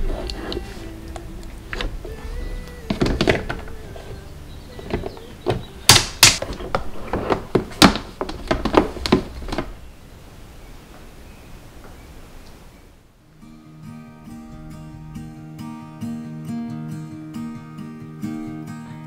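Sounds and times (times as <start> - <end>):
plastic parts knocking and clicking: 2.9 - 3.8, 4.8 - 9.8.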